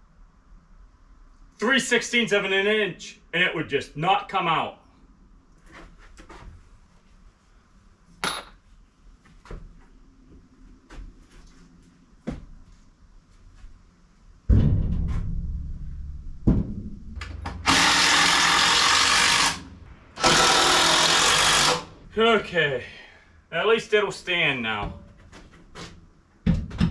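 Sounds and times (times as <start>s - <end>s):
heavy thump: 14.5s - 17.7s
power drill driving a screw: 17.6s - 21.9s
wooden boards knocking and clattering: 26.4s - 26.9s.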